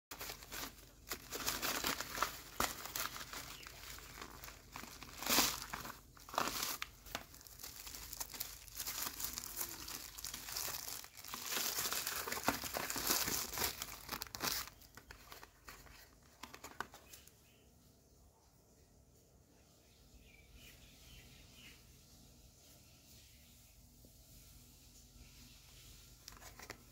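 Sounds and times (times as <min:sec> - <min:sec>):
plastic packaging crinkling and tearing: 0:00.1 - 0:17.3, 0:26.2 - 0:26.9.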